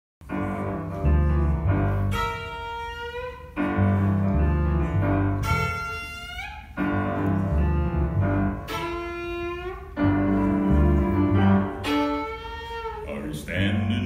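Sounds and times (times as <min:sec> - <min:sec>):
piano chords: 0:00.2 - 0:14.0
violin melody: 0:00.2 - 0:14.0
deep bass line: 0:06.9 - 0:08.7, 0:10.1 - 0:11.8.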